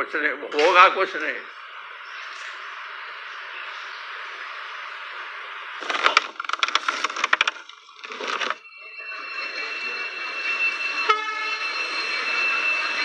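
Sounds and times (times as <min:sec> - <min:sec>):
faint high whine: 0:00.0 - 0:13.0
steady hiss: 0:00.1 - 0:05.9.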